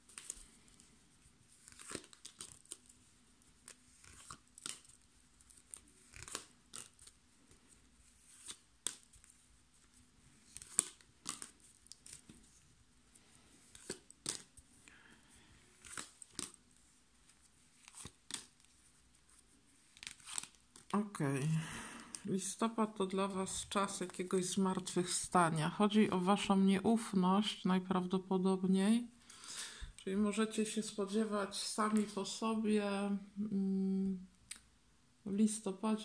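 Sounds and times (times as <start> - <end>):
cards snapping and sliding: 1.6 - 2.8, 3.6 - 7.1, 8.3 - 9.3, 10.4 - 12.4, 13.6 - 14.5, 15.8 - 16.6, 17.8 - 18.6, 19.9 - 20.9.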